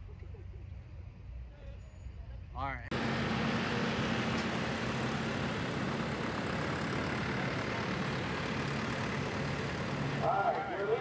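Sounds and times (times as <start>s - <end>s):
diesel engine running under load: 2.9s - 11.0s.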